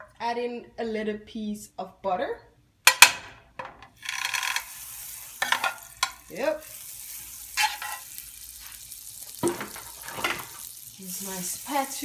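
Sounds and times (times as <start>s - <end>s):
butter sizzling in a frying pan: 4.0s - 12.0s
knife scraping a pan: 7.6s - 8.1s.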